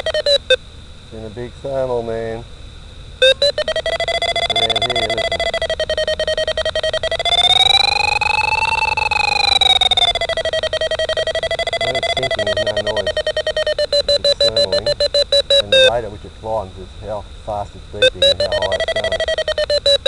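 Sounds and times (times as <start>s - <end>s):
variometer beeping: 0.0s - 0.6s, 3.2s - 16.0s, 18.0s - 20.0s.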